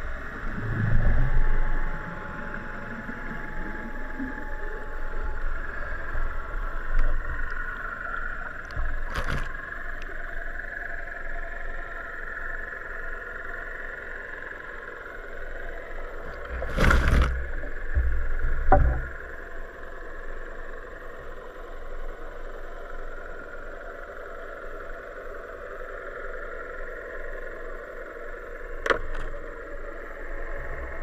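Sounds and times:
underwater engine drone: 0.0 - 31.0
low thumps: 16.6 - 19.2.

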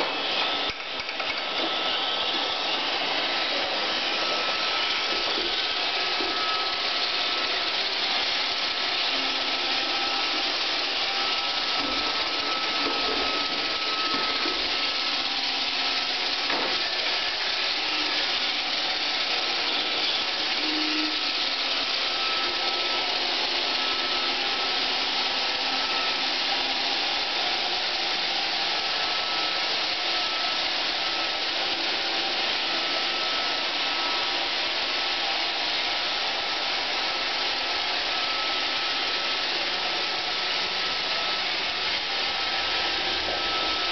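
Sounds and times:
robot vacuum whirring: 0.0 - 43.9.

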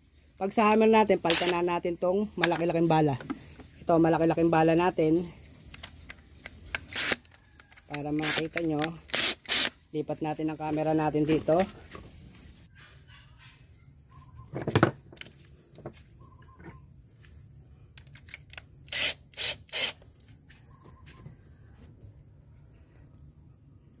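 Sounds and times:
insects trilling: 0.0 - 24.0.

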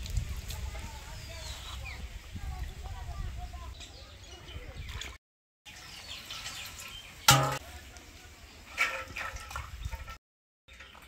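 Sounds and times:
steel utensils clanking: 7.3 - 7.6.

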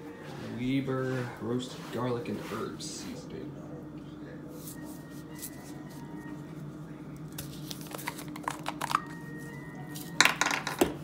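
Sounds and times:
steady low hum: 0.0 - 10.2
plastic shaker cap clicking and crinkling: 7.7 - 9.1.

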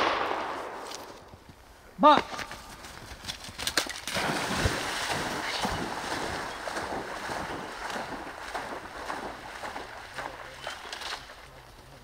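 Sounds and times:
dog splashing through water: 4.0 - 11.5.

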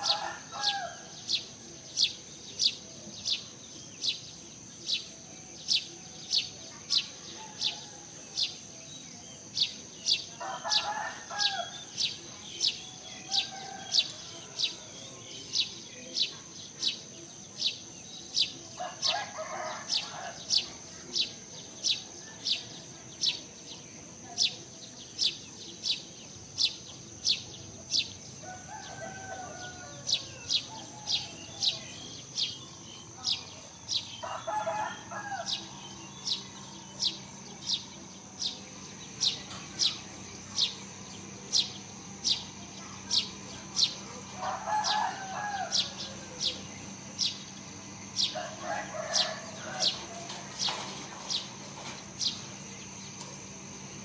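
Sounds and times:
rooster crowing: 0.0 - 1.3, 10.4 - 11.9, 18.8 - 20.6, 28.4 - 32.0, 34.2 - 36.8, 43.8 - 47.2, 48.2 - 50.6
high-pitched insect drone: 0.1 - 54.0.

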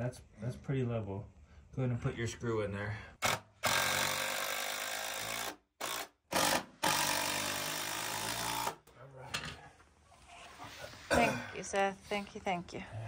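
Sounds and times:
impact driver driving screws: 3.2 - 8.8.

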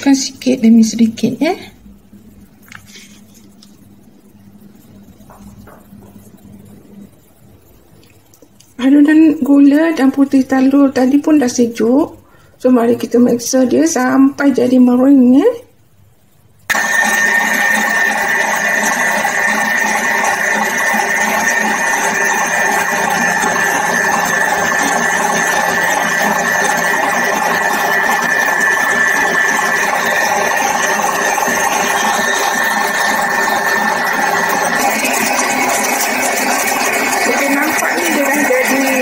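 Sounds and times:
stand mixer motor whine: 16.7 - 39.0
whisk beating in metal bowl: 16.7 - 39.0.

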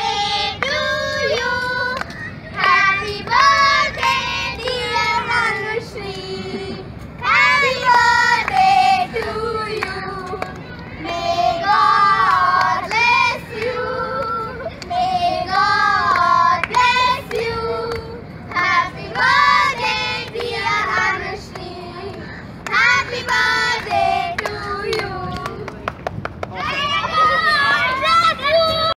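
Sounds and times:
girls singing: 0.0 - 2.0, 2.6 - 25.7
hands clapping: 1.3 - 2.8, 22.6 - 26.8.

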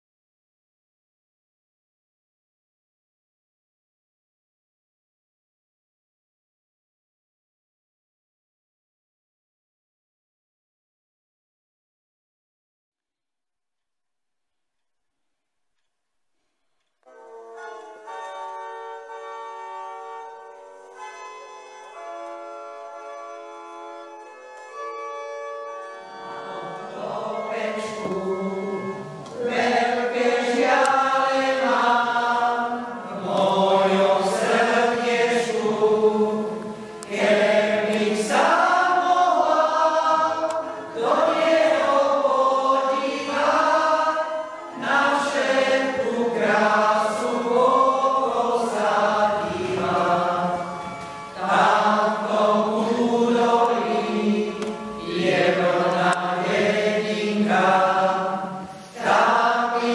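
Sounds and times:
mixed choir singing: 26.2 - 59.9.

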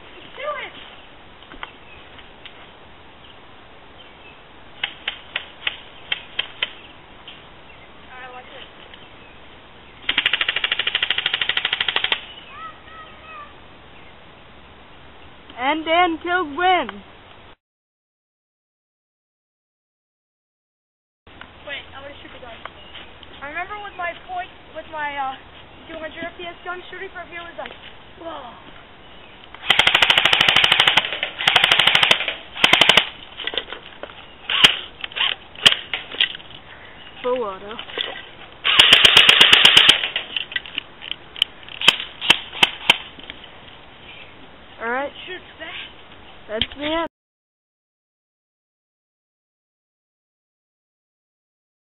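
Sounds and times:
airsoft rifle full-auto burst: 10.1 - 12.2, 29.6 - 33.1, 38.6 - 40.2.

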